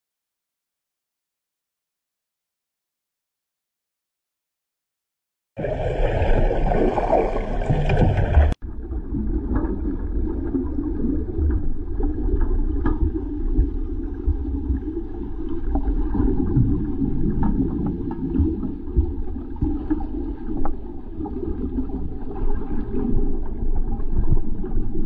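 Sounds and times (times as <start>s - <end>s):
underwater rumbling wash: 5.6s - 25.0s.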